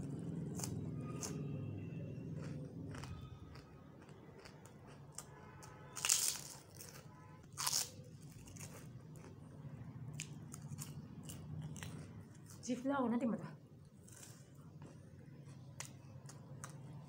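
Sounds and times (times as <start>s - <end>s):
crackers crunching: 2.4s - 12.6s, 13.8s - 16.9s.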